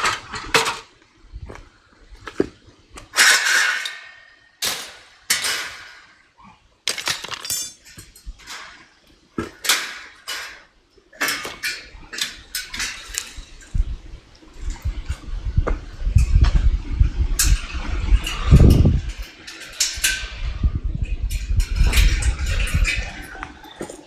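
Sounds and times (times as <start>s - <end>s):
metal clanks and bangs: 2.3s - 13.8s.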